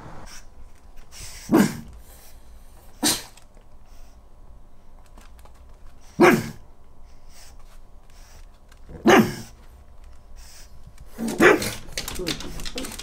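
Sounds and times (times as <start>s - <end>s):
dog sneezing: 3.0s - 3.4s, 6.2s - 6.6s, 9.0s - 9.5s.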